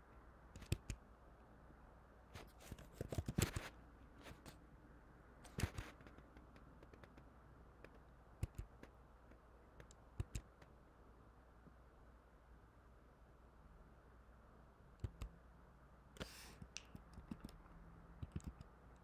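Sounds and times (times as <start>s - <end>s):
keyboard keys tapping: 5.5s - 10.7s, 15.0s - 15.3s, 16.6s - 17.6s, 18.2s - 19.0s.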